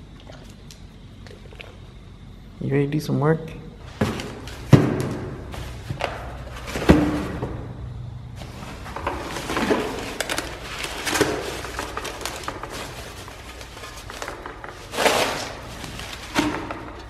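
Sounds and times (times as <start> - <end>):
packaging rustling and crackling: 8.4 - 17.0.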